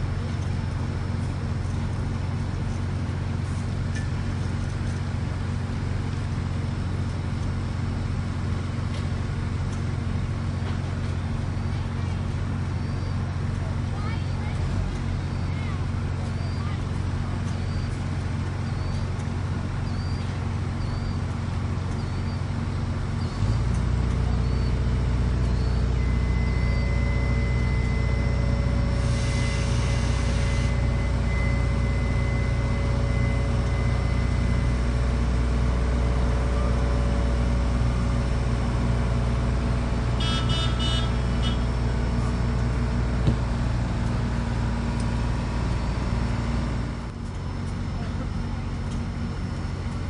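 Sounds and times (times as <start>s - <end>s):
steam locomotive rumble: 0.0s - 50.0s
steam hiss: 29.0s - 30.8s.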